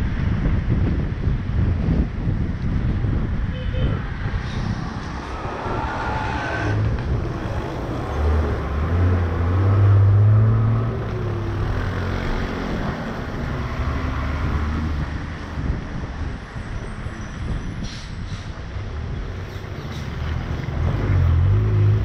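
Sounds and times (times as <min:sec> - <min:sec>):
deep engine hum: 0:04.0 - 0:15.7
car on wet road: 0:04.0 - 0:16.8, 0:19.7 - 0:22.0.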